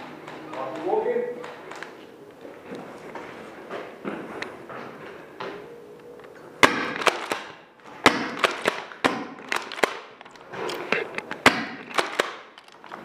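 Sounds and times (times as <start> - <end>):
pellets striking: 6.6 - 10.2, 10.9 - 13.0
airsoft guns firing: 6.6 - 10.3, 11.2 - 12.8.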